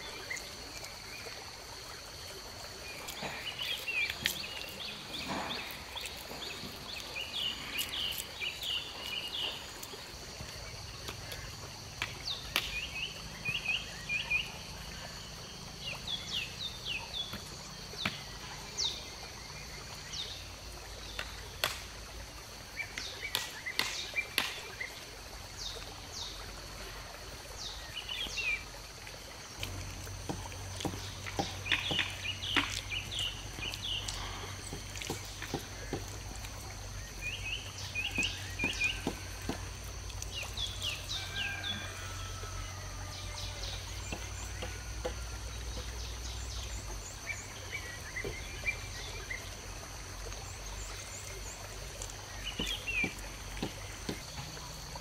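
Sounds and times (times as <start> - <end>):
insects droning: 0.0 - 55.0
birds chirping: 2.1 - 10.0, 30.3 - 39.6, 50.4 - 54.7.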